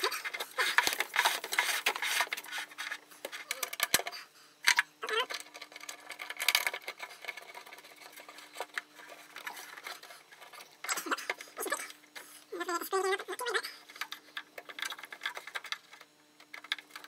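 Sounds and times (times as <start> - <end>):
cable and metal fittings rustling: 5.1 - 11.9.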